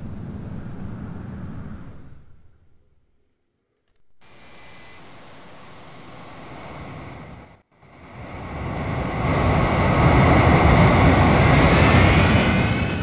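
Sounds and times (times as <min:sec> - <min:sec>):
jet engine roar: 0:00.0 - 0:02.6, 0:04.2 - 0:13.0
faint high whine: 0:00.0 - 0:10.5.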